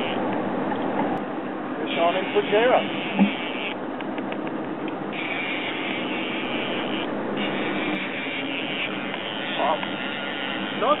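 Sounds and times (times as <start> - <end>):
outboard engines running: 0.0 - 11.0
fishing reel buzzing: 1.9 - 3.8, 5.1 - 11.0.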